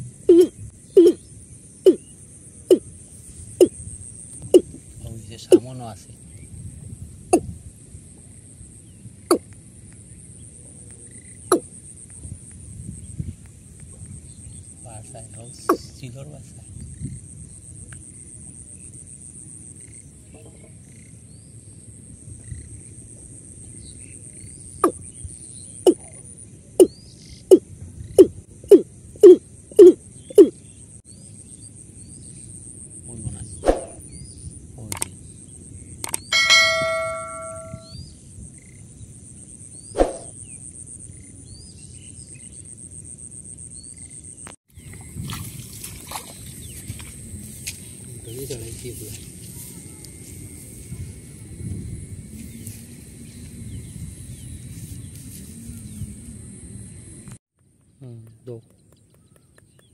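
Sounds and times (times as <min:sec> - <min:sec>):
bird calling with low falling notes: 0:00.0 - 0:02.9, 0:36.1 - 0:38.2
insects trilling: 0:00.0 - 0:57.4
sharp loud sound: 0:36.3 - 0:37.9.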